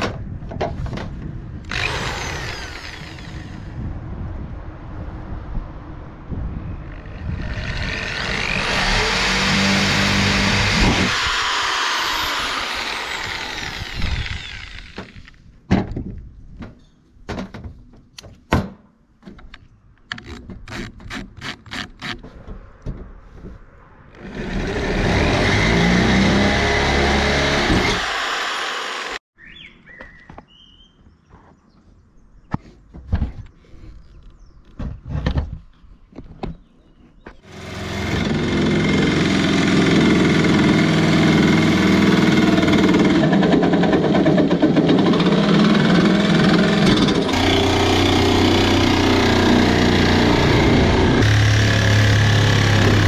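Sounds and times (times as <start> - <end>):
electric drill drilling sheet metal: 1.7 - 3.6, 7.8 - 15.4, 25.3 - 29.2, 45.1 - 53.0
knocks and clicks handling drill: 11.0 - 16.0, 19.3 - 22.2.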